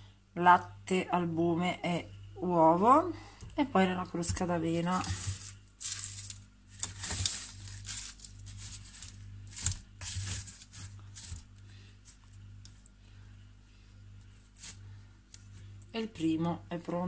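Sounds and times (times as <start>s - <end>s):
low steady hum: 0.0s - 17.0s
fork scraping plastic tub: 4.8s - 11.5s.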